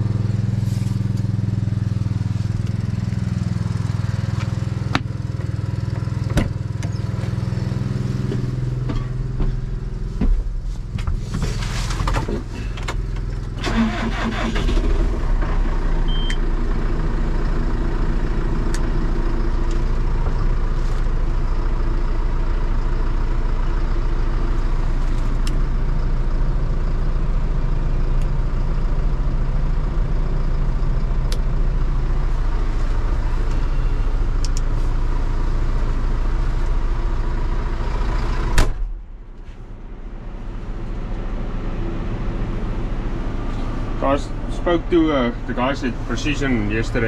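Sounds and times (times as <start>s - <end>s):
vehicle engine running: 0.0s - 47.0s
cab door slamming shut: 38.5s - 39.0s.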